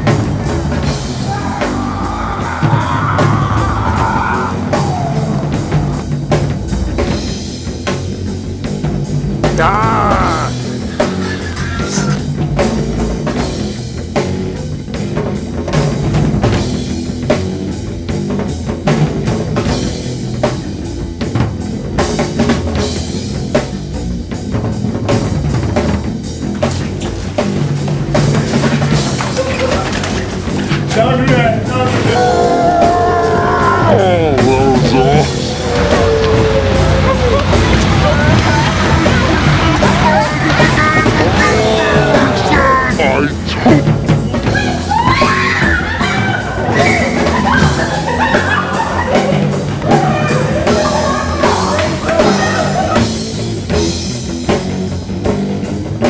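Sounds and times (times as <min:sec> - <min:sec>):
rock music with drum beat: 0:00.0 - 0:56.0.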